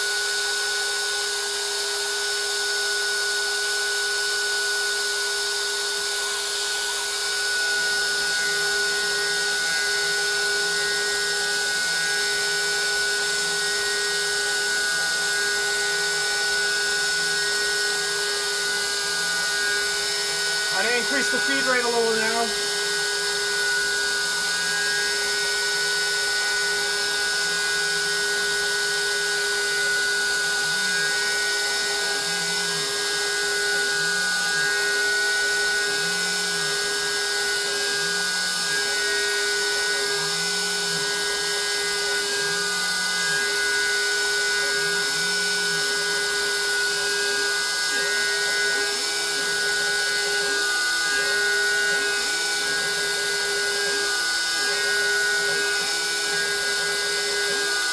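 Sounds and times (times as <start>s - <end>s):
wood router whining: 0.0s - 57.9s
stepper motors whining: 19.4s - 22.8s.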